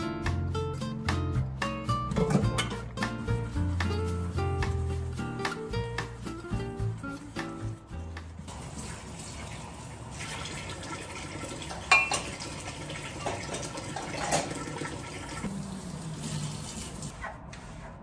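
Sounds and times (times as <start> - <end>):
dishware clinking: 11.9 - 12.4.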